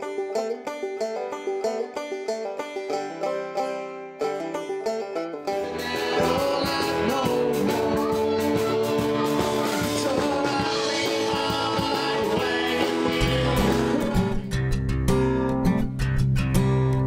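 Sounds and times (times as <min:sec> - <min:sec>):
country band playing: 0:00.0 - 0:17.0
man singing: 0:05.6 - 0:14.5.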